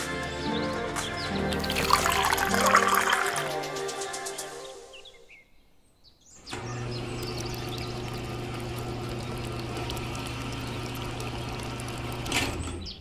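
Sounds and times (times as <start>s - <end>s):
small electric motor humming: 6.5s - 12.4s.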